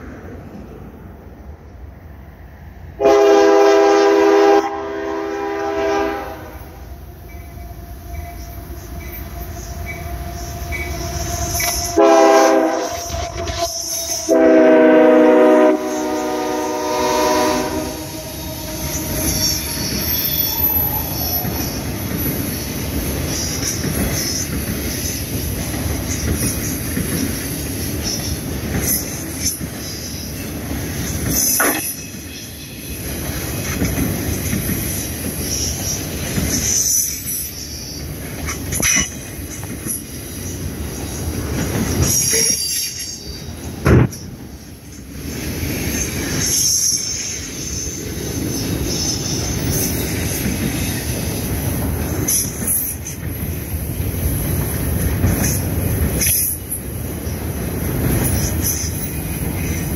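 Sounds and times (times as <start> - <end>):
locomotive air horn: 3.0 - 21.4.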